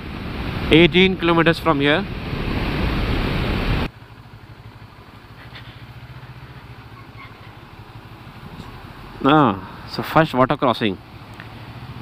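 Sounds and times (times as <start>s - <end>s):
wind and road noise: 0.0s - 12.0s
motorcycle engine idling: 3.9s - 10.1s.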